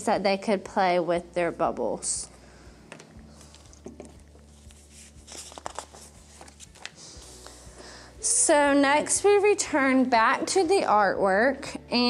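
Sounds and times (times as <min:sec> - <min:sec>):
paper page rustling: 0:03.3 - 0:07.6
items tapping on wooden table: 0:03.8 - 0:04.2.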